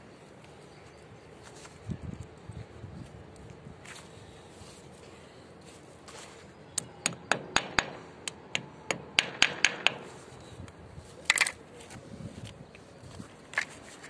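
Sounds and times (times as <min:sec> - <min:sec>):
hammer tapping plastic plugs: 0:06.8 - 0:10.2.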